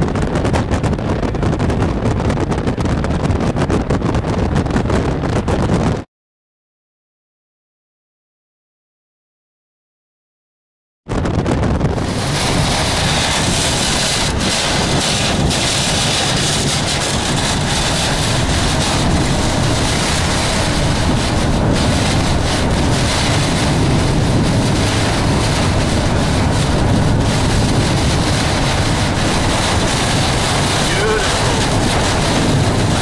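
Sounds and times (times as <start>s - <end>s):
wind on a vehicle: 0.0s - 6.1s, 11.1s - 33.0s
rain beating on a vehicle: 12.0s - 33.0s.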